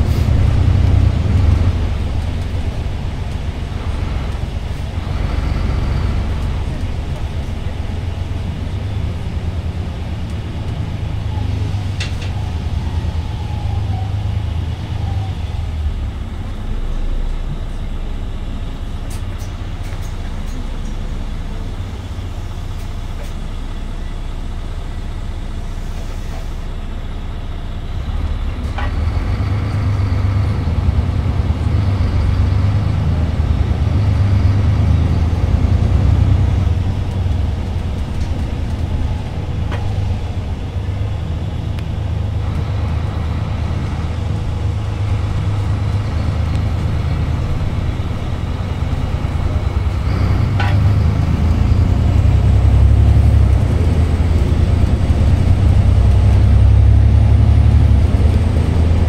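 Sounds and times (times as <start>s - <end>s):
bus diesel engine: 0.0s - 59.0s.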